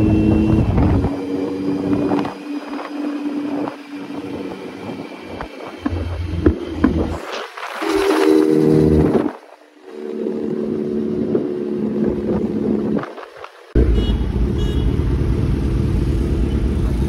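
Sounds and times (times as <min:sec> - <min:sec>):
motorcycle exhaust note: 0:00.0 - 0:04.6, 0:07.8 - 0:09.3.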